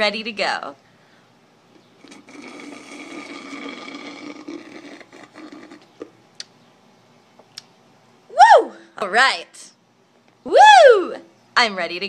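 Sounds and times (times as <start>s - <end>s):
slurping through a straw: 2.0s - 6.1s.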